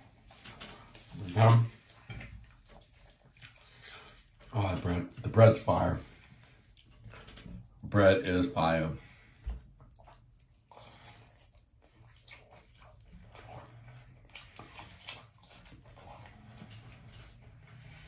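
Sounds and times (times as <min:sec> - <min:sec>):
chewing and wet mouth sounds: 0:00.0 - 0:07.8, 0:09.0 - 0:18.0.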